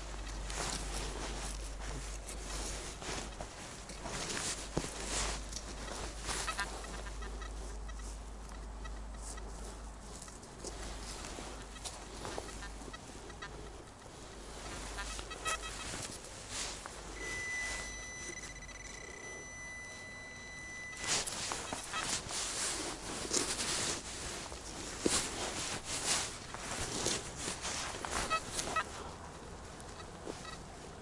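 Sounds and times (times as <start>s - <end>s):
soil and leaves being dug: 0.0s - 31.0s
metal detector chirps and tone: 5.1s - 9.5s, 14.9s - 16.0s, 17.1s - 22.3s, 28.2s - 28.9s, 30.4s - 30.6s.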